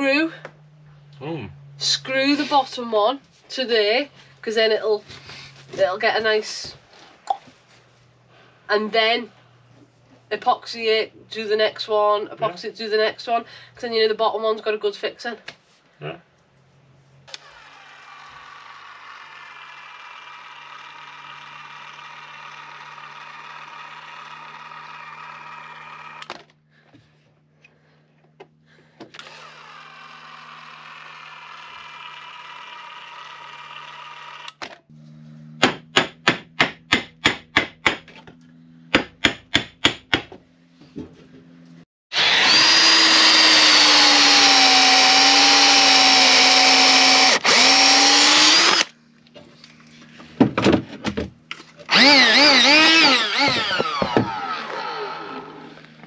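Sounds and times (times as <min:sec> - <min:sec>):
power drill running: 0:17.3 - 0:26.5, 0:29.1 - 0:34.6, 0:42.1 - 0:49.0, 0:51.9 - 0:56.0
power tool whine: 0:17.3 - 0:26.5, 0:29.1 - 0:35.6, 0:42.1 - 0:49.0, 0:51.8 - 0:56.0.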